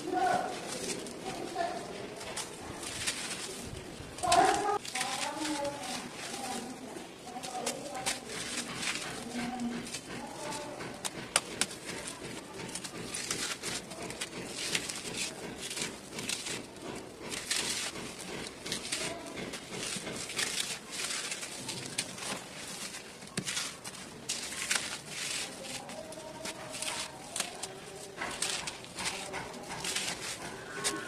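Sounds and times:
dirt clods crunching by hand: 0.0 - 31.0.

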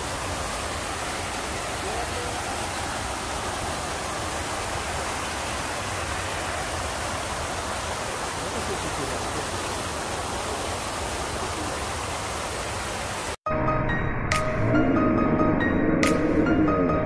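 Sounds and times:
fountain water splashing: 0.0 - 13.4.

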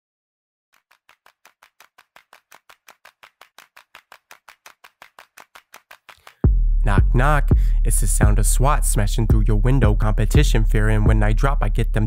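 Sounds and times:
fast percussive taps: 0.8 - 7.2.

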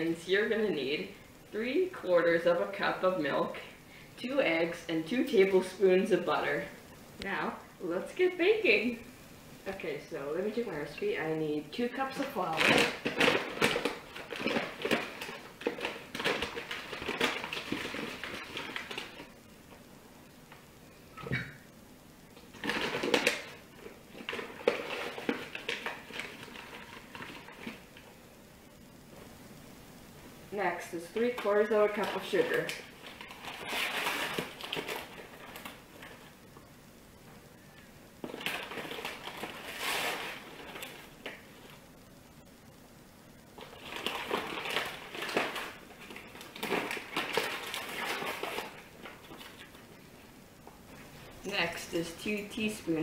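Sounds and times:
paper flour bag rustling: 11.8 - 19.4, 22.5 - 28.0, 30.8 - 36.4, 38.2 - 41.8, 43.6 - 50.0.

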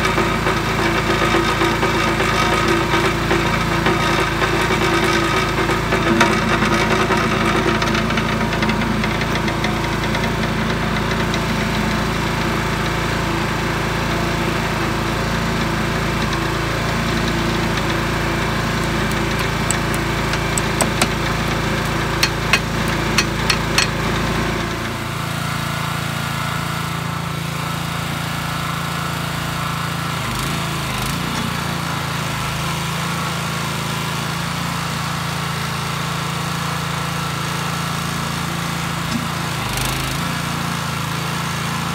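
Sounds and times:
small gas engine running: 0.0 - 41.9
sharp metal clicks: 18.8 - 24.0.

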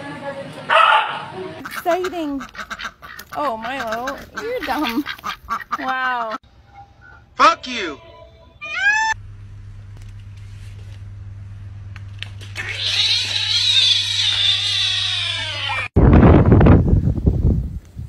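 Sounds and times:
low steady hum: 6.5 - 12.6
kitten crying: 8.6 - 9.2, 12.6 - 15.9
wind-like rushing noise: 16.0 - 18.0.

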